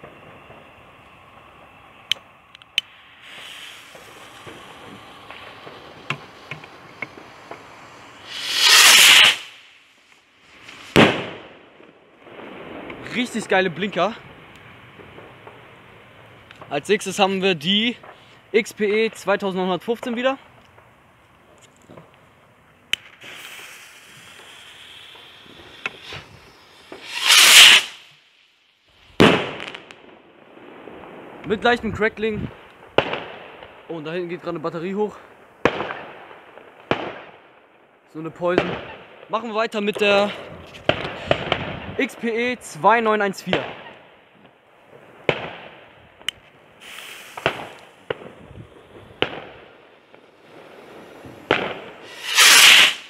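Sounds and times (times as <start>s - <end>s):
firework bang: 0.0s - 2.1s, 2.8s - 9.8s, 10.5s - 13.5s, 23.0s - 28.1s, 29.1s - 31.5s, 32.8s - 33.7s, 40.3s - 42.0s, 46.8s - 53.0s
firework fuse hissing: 0.0s - 18.8s, 21.7s - 30.1s, 40.0s - 42.2s, 46.7s - 53.0s
fuse hissing and popping: 2.1s - 10.8s, 22.9s - 28.2s, 46.8s - 48.0s
rocket launch whoosh: 2.8s - 11.7s, 23.2s - 28.2s, 50.6s - 53.0s.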